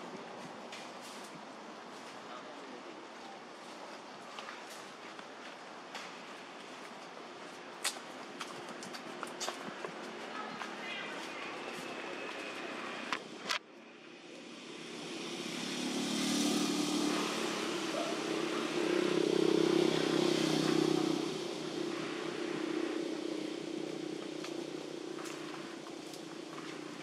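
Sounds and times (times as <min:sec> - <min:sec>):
vehicle engine passing by: 0:14.4 - 0:27.0.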